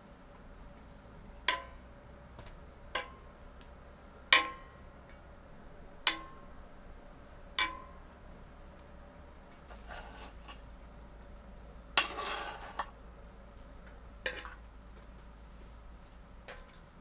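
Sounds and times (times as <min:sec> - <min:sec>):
metal tongs clinking on a pan: 0:01.5 - 0:01.8, 0:03.0 - 0:03.3, 0:04.3 - 0:04.8, 0:06.0 - 0:06.5, 0:07.6 - 0:08.0.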